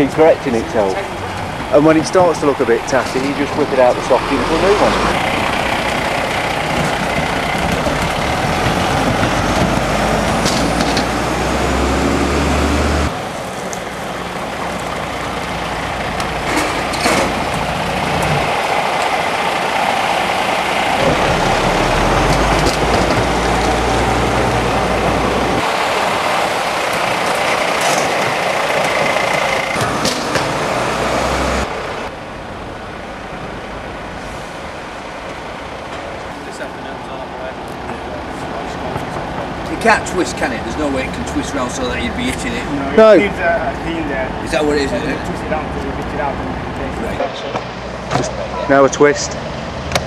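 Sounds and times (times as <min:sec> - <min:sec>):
diesel engine running at low speed: 0:00.6 - 0:39.6.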